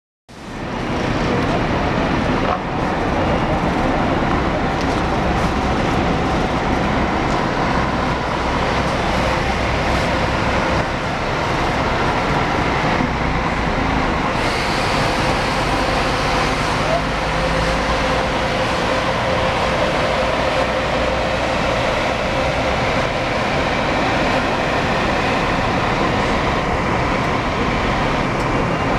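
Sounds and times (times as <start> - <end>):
bus diesel engine low drone: 0.3 - 28.9
hissy tone: 14.3 - 21.2.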